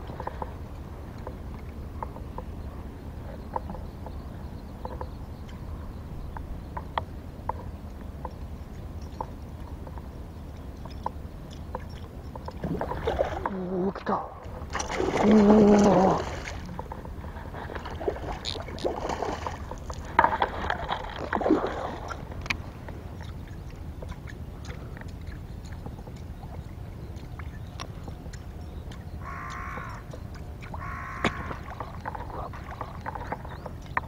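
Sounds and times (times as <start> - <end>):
fish splashing: 10.8 - 13.8, 14.4 - 34.0.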